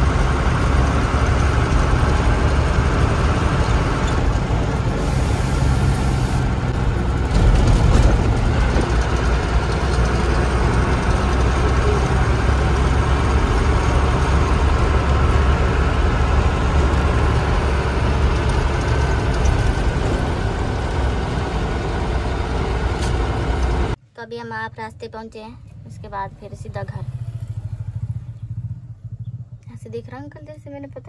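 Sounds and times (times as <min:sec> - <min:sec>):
vehicle engine running: 0:00.0 - 0:24.0
road noise: 0:00.0 - 0:31.0.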